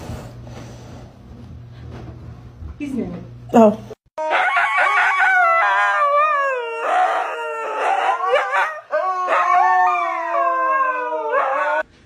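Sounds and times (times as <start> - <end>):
huskies howling: 4.2 - 11.8.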